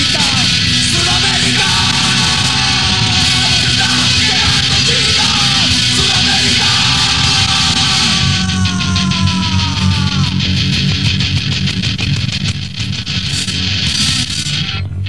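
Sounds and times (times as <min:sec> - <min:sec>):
shouted vocals: 0:00.0 - 0:11.0
bass guitar: 0:00.0 - 0:15.0
distorted electric guitar: 0:00.0 - 0:15.0
drums: 0:00.0 - 0:15.0.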